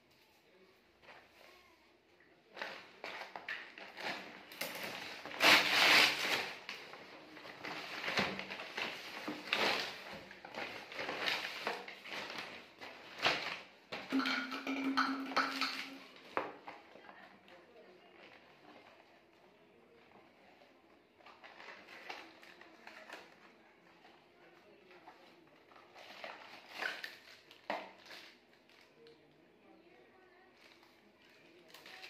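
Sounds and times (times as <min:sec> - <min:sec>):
paper bag crinkling: 0:02.6 - 0:16.2, 0:30.6 - 0:32.0.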